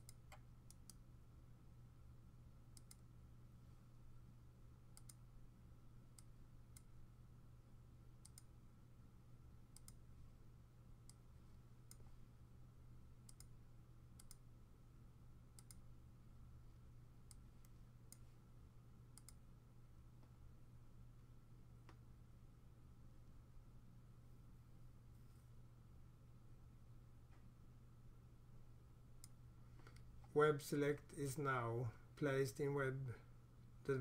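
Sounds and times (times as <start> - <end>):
computer mouse clicks: 0.0 - 1.0, 2.7 - 3.1, 4.9 - 5.3, 6.1 - 7.0, 8.2 - 8.5, 9.7 - 10.1, 13.2 - 13.6, 14.2 - 14.5, 15.6 - 15.9, 19.2 - 19.4, 29.2 - 30.1
low electrical hum: 0.0 - 34.0.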